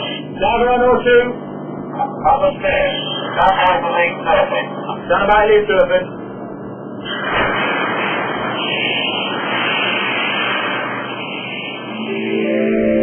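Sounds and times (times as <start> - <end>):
steady rushing noise: 6.1 - 13.0
synthesizer music with held tones: 11.9 - 13.0.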